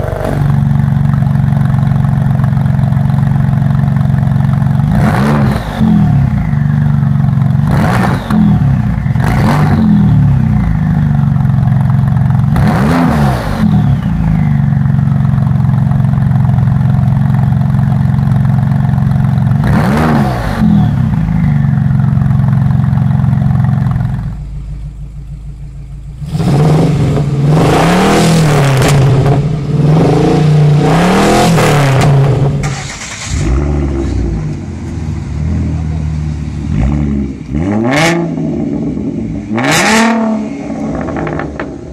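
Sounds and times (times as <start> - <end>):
vee eight engine revving: 0.0 - 24.3, 26.2 - 41.9
sports car engine idling and revving: 0.0 - 41.9.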